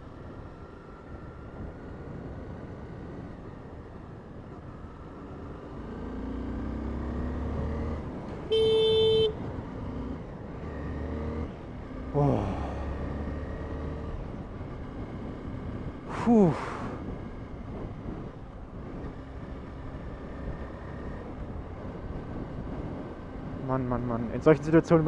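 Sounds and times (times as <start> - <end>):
motorcycle engine running: 6.6 - 9.5
motorcycle horn beep: 8.5 - 9.4
wind noise: 21.3 - 24.2.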